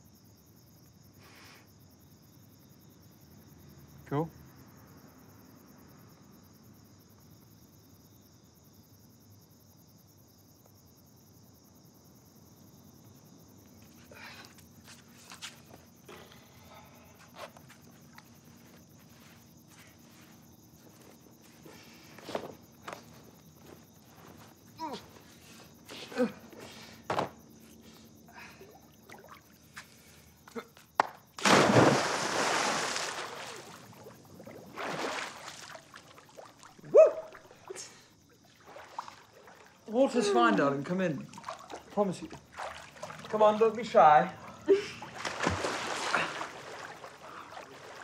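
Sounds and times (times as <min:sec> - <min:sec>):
faint insect chirping: 0:00.0 - 0:48.0
soft knocks and footsteps: 0:17.1 - 0:25.7
splash into swimming pool: 0:31.4 - 0:39.9, 0:40.6 - 0:43.7, 0:44.4 - 0:48.0.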